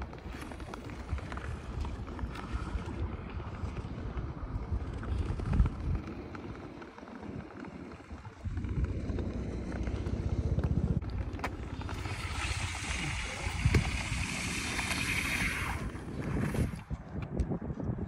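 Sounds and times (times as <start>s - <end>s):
skate blades gliding over ice: 0.0s - 18.0s
wind buffeting microphone: 0.0s - 18.0s.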